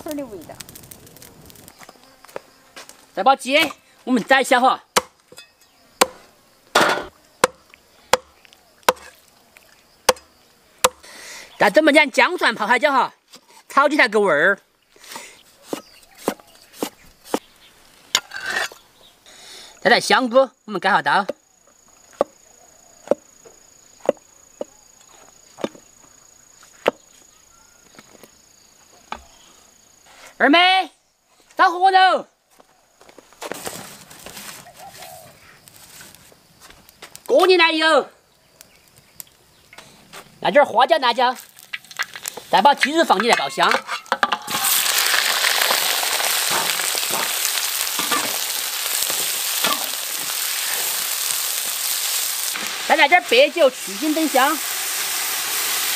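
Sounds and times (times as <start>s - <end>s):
high-pitched insect trill: 0.0s - 13.1s, 14.0s - 31.1s, 34.6s - 55.9s
metal spatula scraping wok: 18.2s - 18.8s, 42.8s - 44.8s
chicken sizzling in oil: 44.4s - 55.9s.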